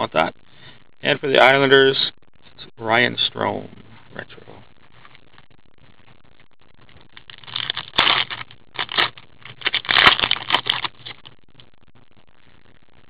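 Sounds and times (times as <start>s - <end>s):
card pack wrapper tearing and crinkling: 7.2s - 11.3s.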